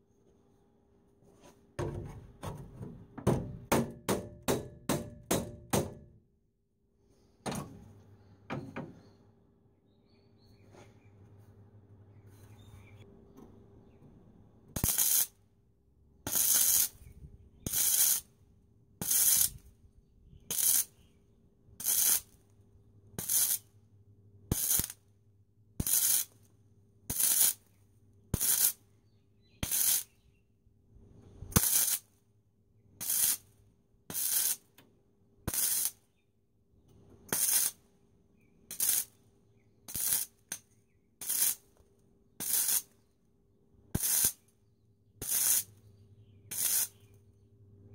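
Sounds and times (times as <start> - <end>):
welder arc crackle bursts: 14.8 - 15.4, 16.3 - 17.0, 17.6 - 18.3, 19.0 - 19.6, 20.5 - 20.9, 21.8 - 22.4, 23.2 - 23.7, 24.5 - 25.0, 25.8 - 26.4, 27.1 - 27.6, 28.4 - 28.8, 29.6 - 30.1, 31.5 - 32.1, 33.0 - 33.4, 34.1 - 34.6, 35.5 - 36.0, 37.3 - 37.8, 38.7 - 39.1, 39.9 - 40.4, 41.2 - 41.6, 42.4 - 42.9, 44.0 - 44.4, 45.2 - 45.7, 46.5 - 47.0.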